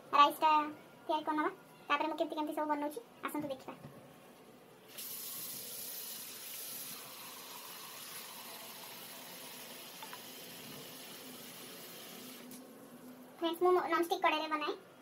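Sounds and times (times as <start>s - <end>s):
tap water running into vessel: 9.8s - 10.8s.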